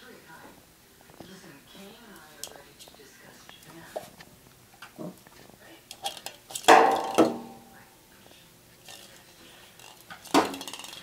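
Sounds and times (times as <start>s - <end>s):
plastic ball knocking and rattling: 9.8s - 11.0s.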